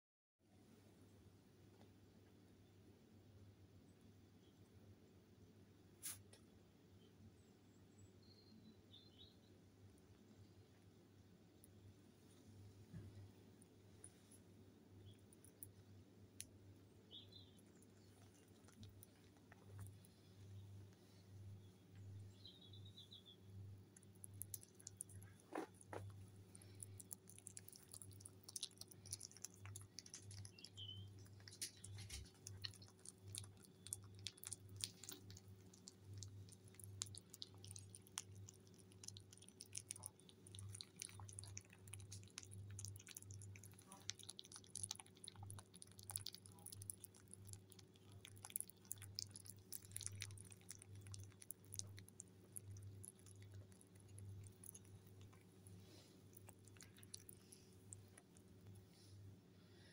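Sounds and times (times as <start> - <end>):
rabbits nibbling wet clicks: 15.0 - 58.8.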